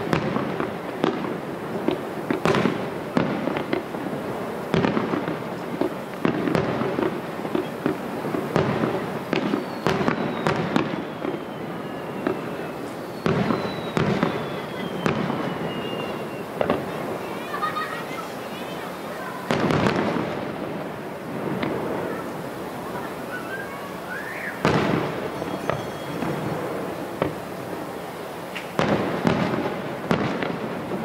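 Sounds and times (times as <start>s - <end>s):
firework shells bursting: 0.0s - 23.3s, 24.2s - 31.0s
firework crackles: 0.0s - 31.0s
long descending whistles: 9.5s - 17.6s, 22.9s - 27.1s.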